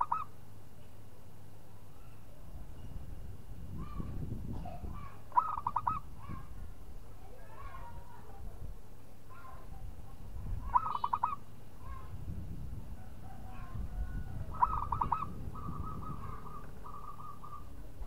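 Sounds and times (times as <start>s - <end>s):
dove cooing: 0.0s - 0.3s, 5.3s - 6.4s, 10.6s - 11.4s, 13.0s - 17.9s.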